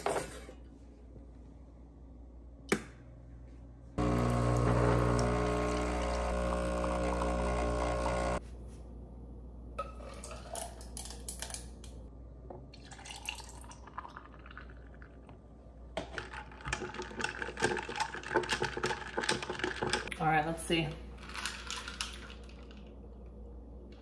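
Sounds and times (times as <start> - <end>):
espresso machine pump humming: 4.0 - 8.4
milk pouring over ice: 12.8 - 15.3.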